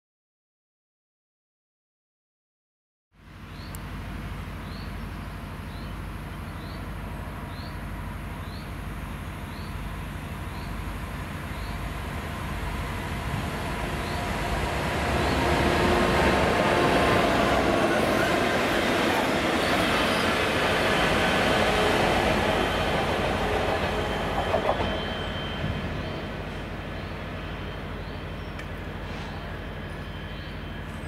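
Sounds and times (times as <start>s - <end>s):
diesel locomotive engines droning: 3.2s - 31.0s
rail noise rumble: 3.2s - 31.0s
faint high chirp: 23.8s - 31.0s.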